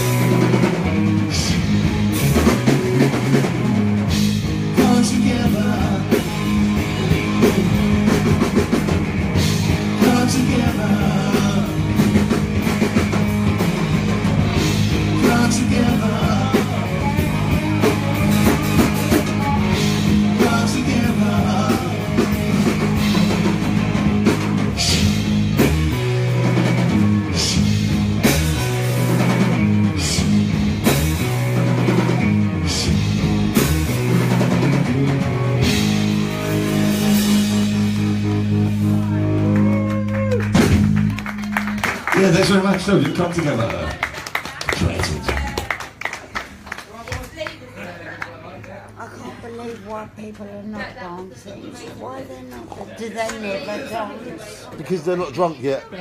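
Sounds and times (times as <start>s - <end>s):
low bass notes: 0.0s - 43.7s
drum kit: 0.0s - 46.1s
electric guitar: 0.0s - 46.5s.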